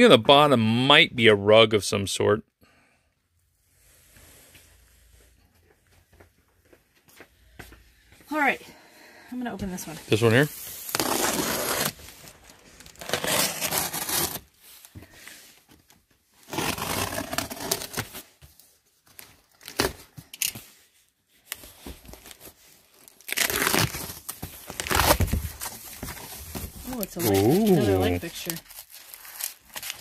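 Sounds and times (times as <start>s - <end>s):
cardboard box being torn open: 10.9s - 12.0s, 12.8s - 14.5s, 16.4s - 18.2s, 23.2s - 30.0s
packing crinkling: 21.5s - 30.0s.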